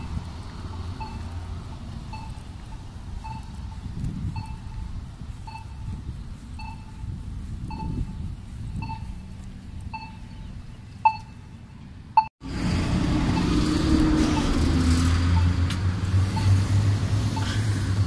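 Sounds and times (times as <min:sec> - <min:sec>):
traffic noise: 0:00.0 - 0:18.0
vehicle engine: 0:00.0 - 0:18.0
pedestrian signal beeps: 0:00.9 - 0:01.4, 0:02.1 - 0:12.3, 0:15.4 - 0:15.6, 0:16.3 - 0:16.6, 0:17.3 - 0:17.6.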